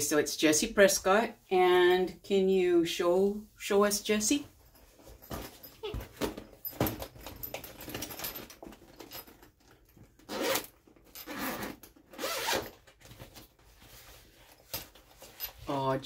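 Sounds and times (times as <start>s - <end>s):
zipper being pulled open: 10.2s - 12.8s.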